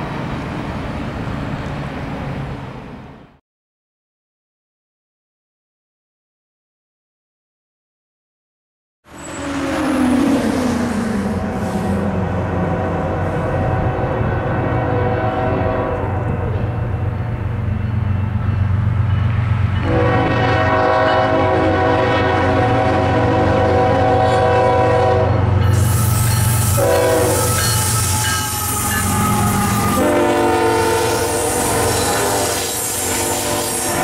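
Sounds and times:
diesel locomotive engines droning: 0.0s - 3.4s, 9.1s - 34.0s
train air horn blasts: 11.3s - 16.5s, 19.8s - 34.0s.

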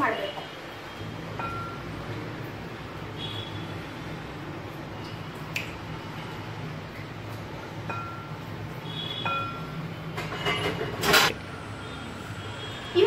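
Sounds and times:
spoon clinking against glass bowl: 7.8s - 8.4s, 9.2s - 10.8s.

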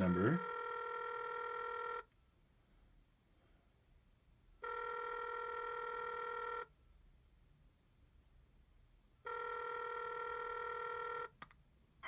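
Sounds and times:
telephone ringback tone: 0.0s - 2.1s, 4.6s - 6.7s, 9.2s - 11.3s.

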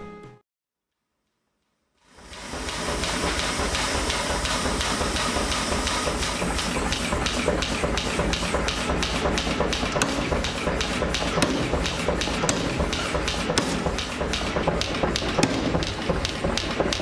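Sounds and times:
power hammer hiss: 2.1s - 7.4s
hammer striking hot steel: 2.2s - 17.0s.

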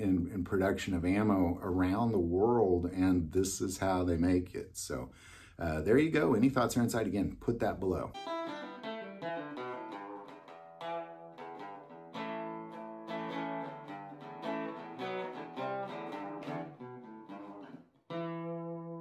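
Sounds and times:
acoustic guitar plucking: 8.2s - 19.0s.

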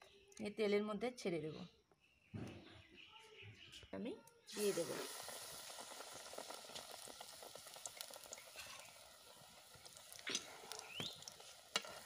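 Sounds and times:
deep-frying sizzle with crackles: 4.5s - 12.0s.

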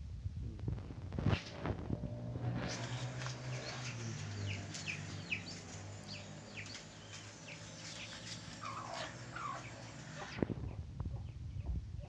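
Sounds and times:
low hum: 0.0s - 11.6s
birds chirping: 2.2s - 11.8s.

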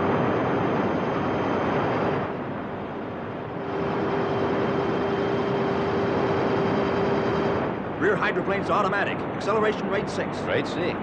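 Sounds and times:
rushing underwater drone: 0.0s - 8.6s
steady hum: 0.0s - 10.4s.

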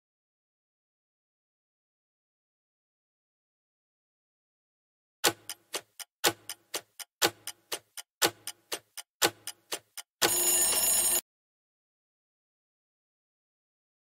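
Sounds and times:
clock ticking: 5.2s - 11.2s
alarm ring: 10.2s - 11.2s.

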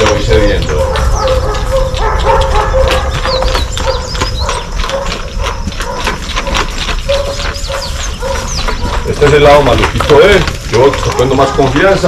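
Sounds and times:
high bird chirps: 0.0s - 2.0s, 2.7s - 5.5s, 7.0s - 9.1s
horse hooves knocking on ground: 0.0s - 12.0s.

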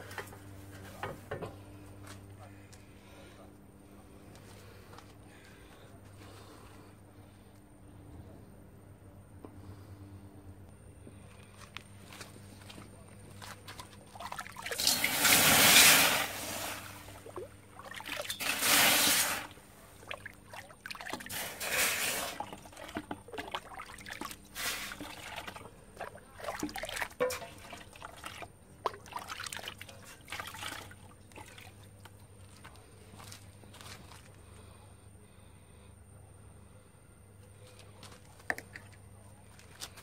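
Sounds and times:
water splashing into a bucket: 13.4s - 32.7s
water pouring over a pan: 14.1s - 19.5s, 20.1s - 31.8s
water trickling: 20.0s - 32.0s.

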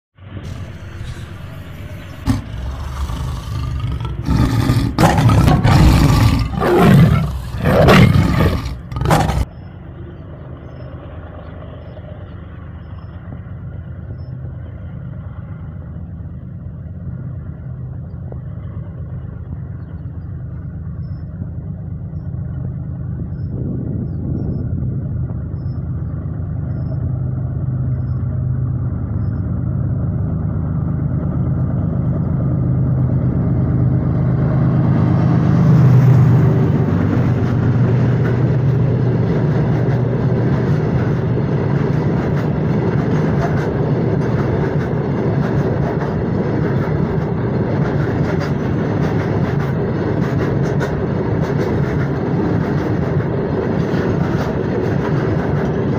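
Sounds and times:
diesel locomotive engine rumbling: 0.2s - 55.9s
tiger roaring: 0.5s - 9.5s.

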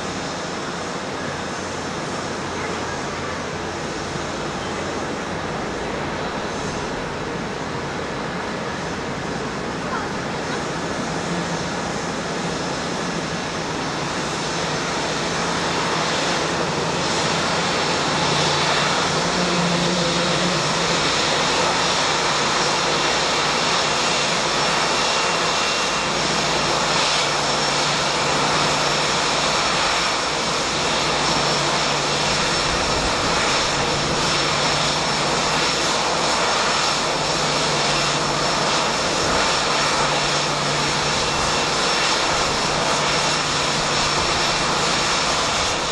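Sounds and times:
jet engines rushing: 0.0s - 45.9s
faint high whine: 0.6s - 8.0s.

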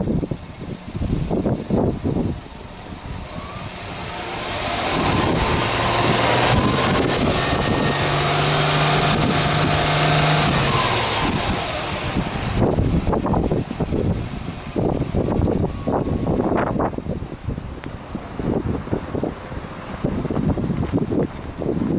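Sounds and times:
car engine revving: 0.7s - 17.1s.

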